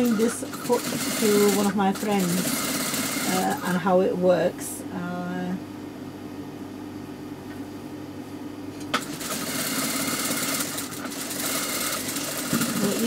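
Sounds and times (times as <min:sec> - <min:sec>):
sewing machine needle stitching: 0:00.0 - 0:03.6, 0:08.9 - 0:13.0
sewing machine motor humming: 0:00.0 - 0:03.8, 0:08.9 - 0:13.0.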